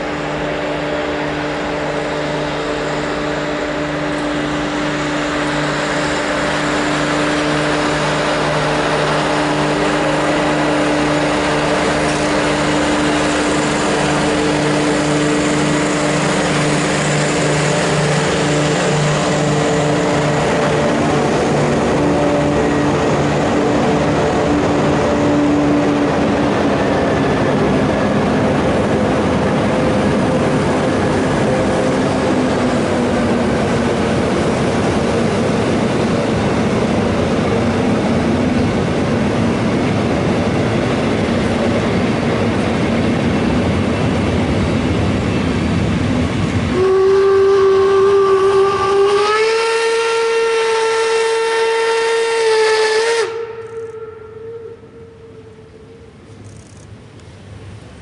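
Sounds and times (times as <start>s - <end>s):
train coaches rolling past: 0.0s - 58.0s
steam locomotive whistle: 46.7s - 56.2s.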